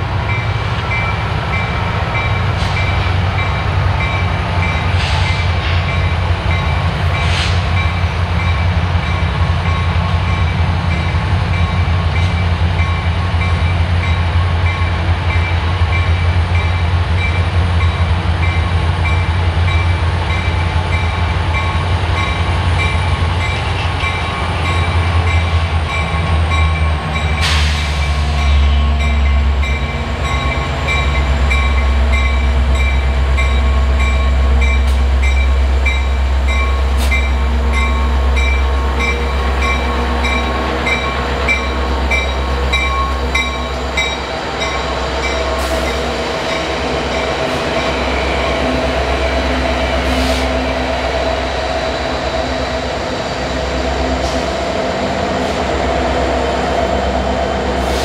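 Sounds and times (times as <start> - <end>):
diesel locomotive engines droning: 0.0 - 58.0
short air hisses: 50.1 - 50.5.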